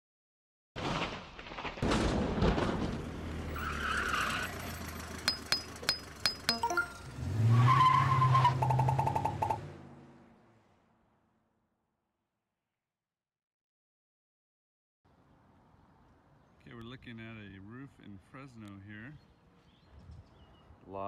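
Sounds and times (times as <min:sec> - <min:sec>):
vehicle engine humming low: 0:03.0 - 0:07.6
high ringing tone: 0:05.3 - 0:07.1.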